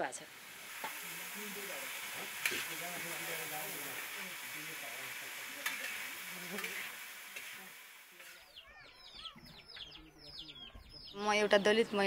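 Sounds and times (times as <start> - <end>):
beans sizzling in a pan: 0.0 - 9.1
small birds chirping: 4.9 - 12.0.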